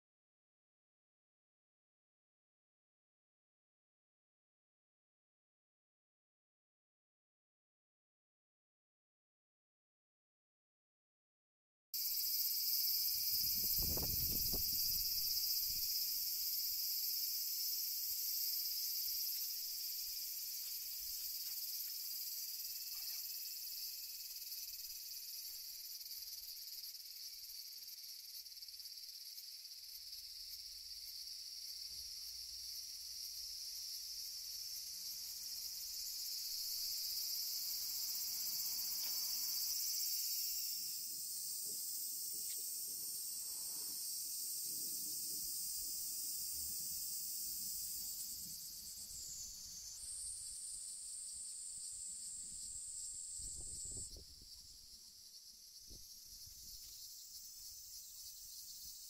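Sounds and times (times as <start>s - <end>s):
high-pitched insect chorus: 12.0s - 59.0s.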